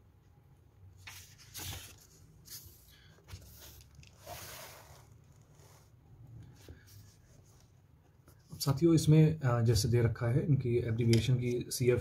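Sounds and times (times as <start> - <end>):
paper pages rustling: 1.0 - 5.8.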